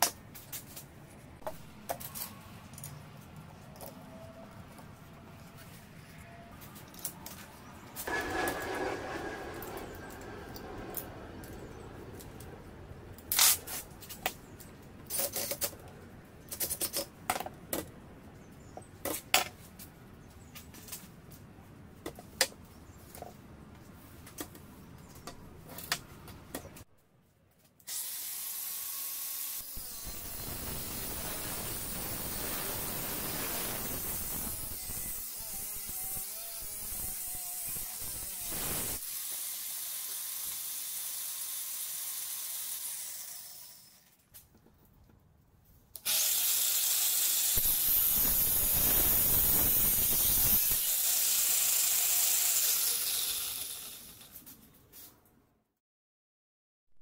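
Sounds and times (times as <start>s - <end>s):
angle grinder cutting steel: 8.0s - 11.7s, 27.9s - 44.1s, 46.0s - 54.4s.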